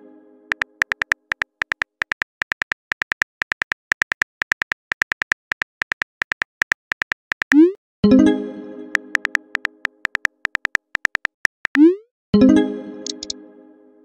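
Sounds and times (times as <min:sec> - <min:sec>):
phone keyboard key clicks: 0:00.5 - 0:07.6, 0:09.1 - 0:11.8, 0:13.1 - 0:13.3.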